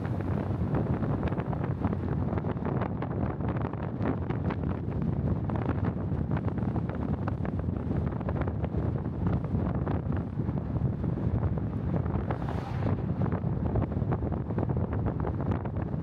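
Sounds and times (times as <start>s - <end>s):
road noise: 0.0s - 3.7s, 9.4s - 15.5s
wind buffeting microphone: 0.0s - 16.0s.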